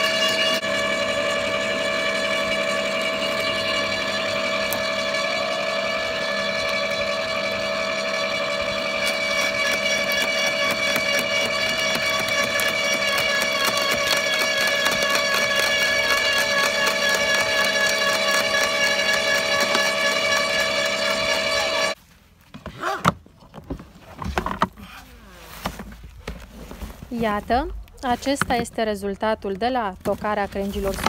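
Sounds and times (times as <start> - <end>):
electric shredder motor whine: 0.0 - 22.0.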